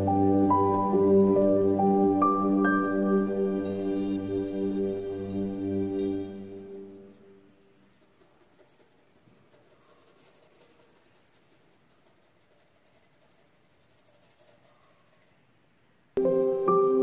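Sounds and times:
pencil scratching on paper: 6.7 - 15.4.

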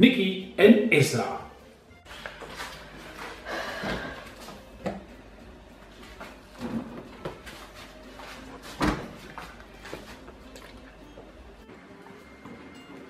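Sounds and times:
refrigerator door opening: 8.7 - 9.3.

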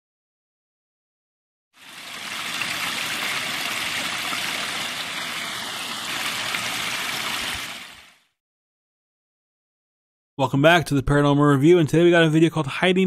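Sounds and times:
stream running water: 1.8 - 8.3.

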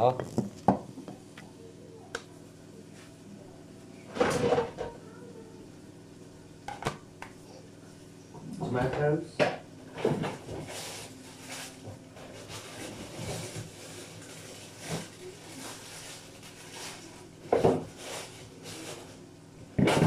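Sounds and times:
rustling in fridge: 9.9 - 20.0.

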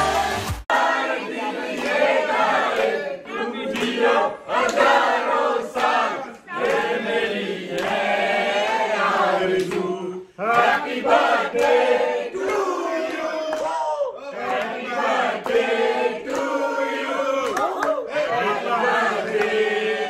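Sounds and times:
people cheering: 0.0 - 3.8, 12.4 - 15.2
group singing and chanting: 0.0 - 20.0.

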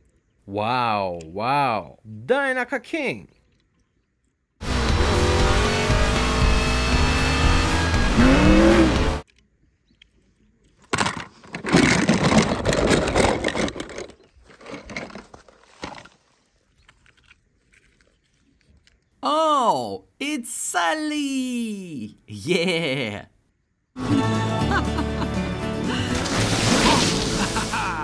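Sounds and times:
music: 4.6 - 9.2, 24.0 - 28.0
race car engine revving: 4.6 - 9.2.

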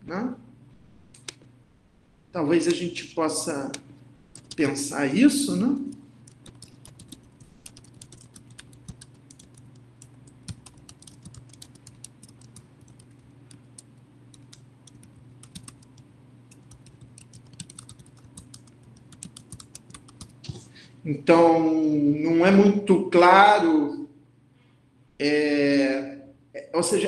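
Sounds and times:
low steady hum: 0.0 - 27.0.

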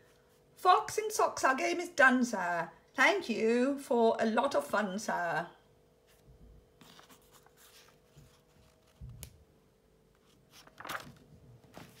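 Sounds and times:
paper rustling: 6.1 - 9.4, 10.1 - 12.0
pages turning: 6.8 - 9.4, 10.1 - 12.0.

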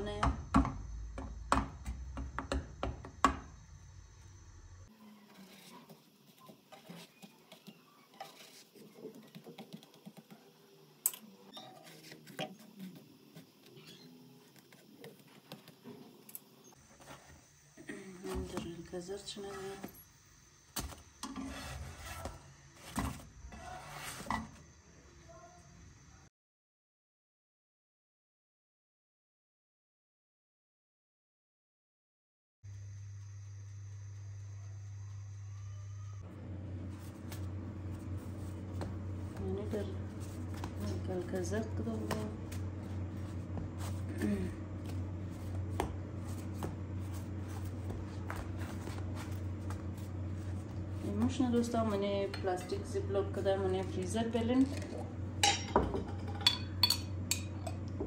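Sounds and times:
steady low hum: 0.0 - 7.3, 32.7 - 58.0
rustling and tapping of food: 5.9 - 10.6.

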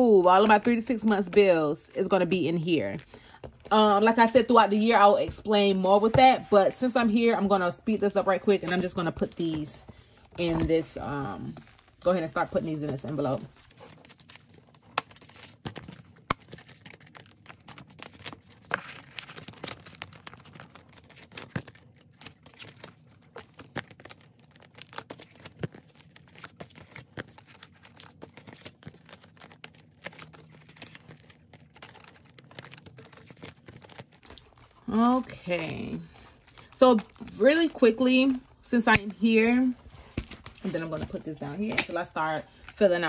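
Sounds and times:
vinyl envelopes crinkling: 0.0 - 43.0.

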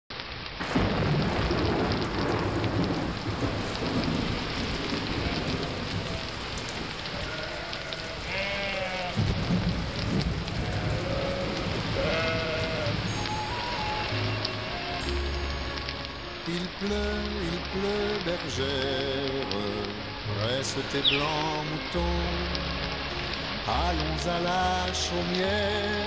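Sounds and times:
rain splashing into water: 0.1 - 26.0.

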